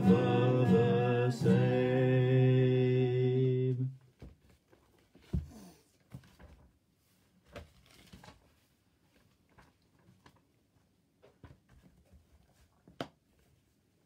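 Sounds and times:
soft rustle: 4.0s - 14.0s.

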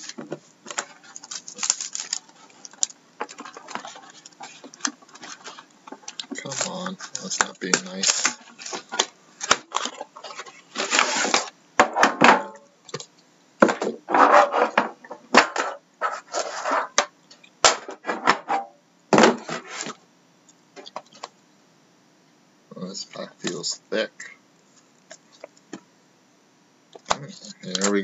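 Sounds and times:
plastic wrap crinkling: 0.0s - 11.6s.

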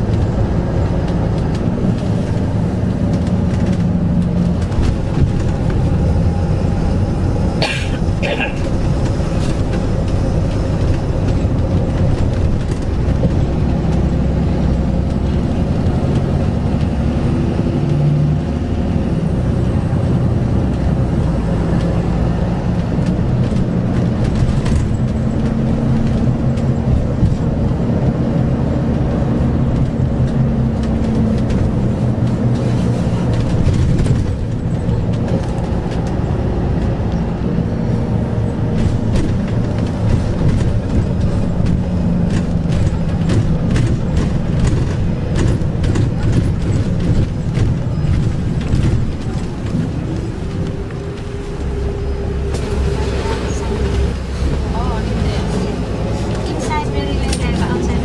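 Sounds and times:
bus engine drone: 0.0s - 58.0s
road noise: 0.0s - 58.0s.

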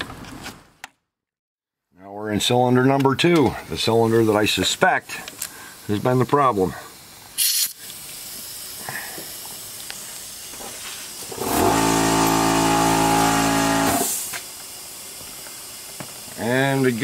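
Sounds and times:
compressed air hissing: 3.7s - 17.0s
sharp burst of air: 6.8s - 17.0s.

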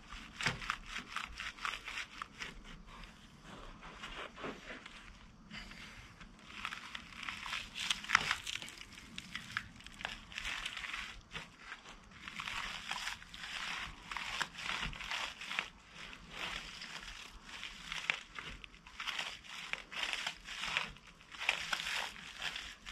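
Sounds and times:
wood cracking: 6.4s - 22.9s.

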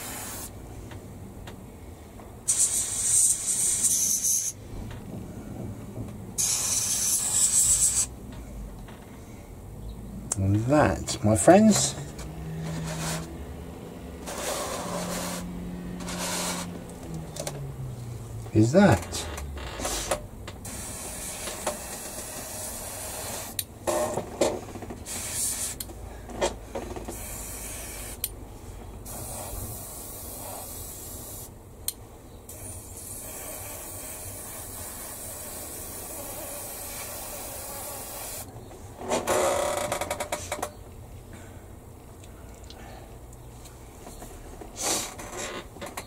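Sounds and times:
airbrush spraying hiss: 0.0s - 0.6s, 2.5s - 4.6s, 6.4s - 8.2s, 14.2s - 16.7s, 20.6s - 23.6s, 25.1s - 25.8s, 27.1s - 28.2s, 29.1s - 31.5s, 32.5s - 38.5s.

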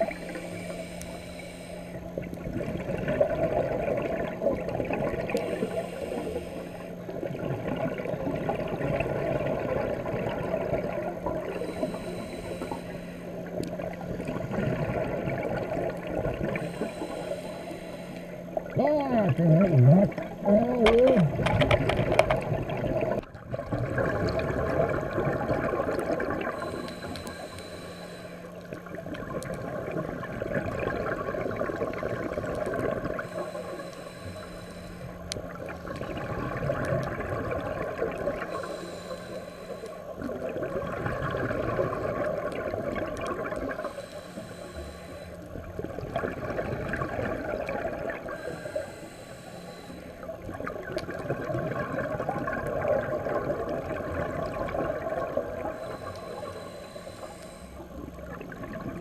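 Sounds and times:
regulator inhale hiss: 0.0s - 2.4s, 5.2s - 7.1s, 11.4s - 14.4s, 16.0s - 18.7s, 26.4s - 29.0s, 32.5s - 35.4s, 37.9s - 40.5s, 43.6s - 45.8s, 48.2s - 50.6s, 55.1s - 58.2s
exhaled air bubbling: 0.0s - 59.0s.

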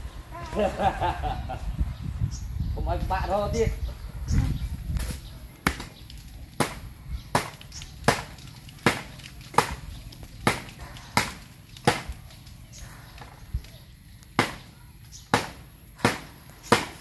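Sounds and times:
blade chopping coconut: 6.6s - 12.2s, 14.4s - 14.7s, 15.3s - 17.0s.

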